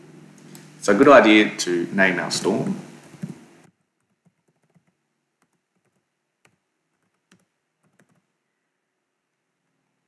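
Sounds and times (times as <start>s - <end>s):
faint keyboard typing: 3.0s - 8.4s.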